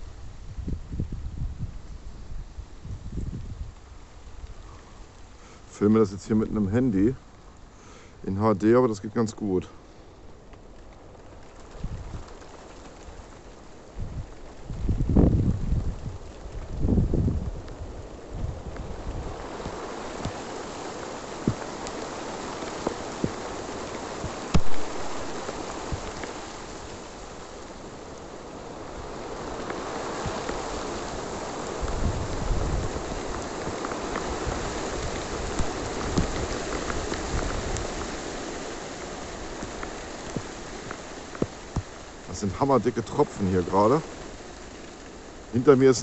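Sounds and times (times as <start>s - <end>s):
wind rumble on microphone: 0.0s - 5.3s, 11.0s - 46.0s
rain pattering on leaves: 0.0s - 46.0s
single raindrop taps: 18.7s - 26.4s, 33.4s - 38.2s, 39.6s - 42.0s.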